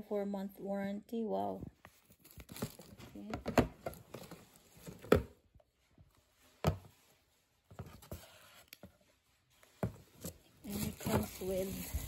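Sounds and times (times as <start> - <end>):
cardboard box rustling: 9.8 - 12.0.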